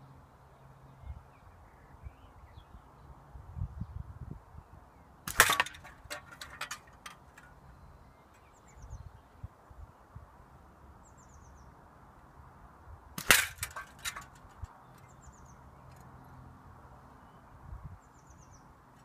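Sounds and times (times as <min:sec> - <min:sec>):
bird chirping: 0:07.6 - 0:09.4, 0:11.0 - 0:11.8, 0:14.7 - 0:16.4.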